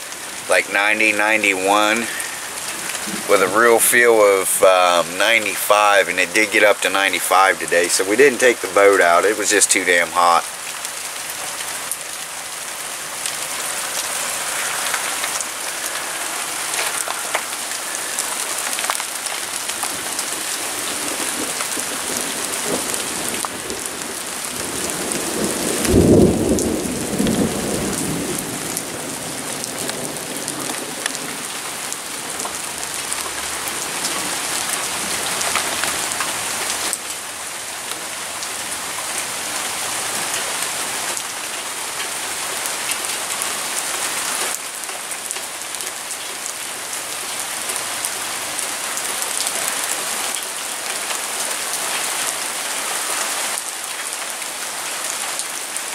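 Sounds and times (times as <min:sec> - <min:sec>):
steady rain falling: 0:00.0 - 0:55.9
low rumble of thunder: 0:21.1 - 0:31.1.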